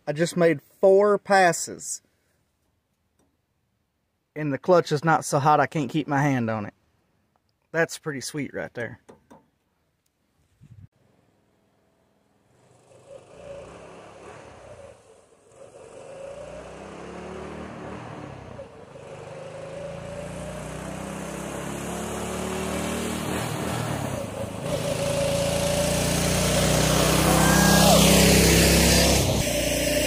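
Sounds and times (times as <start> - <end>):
truck engine at full throttle: 12.5 - 30.0.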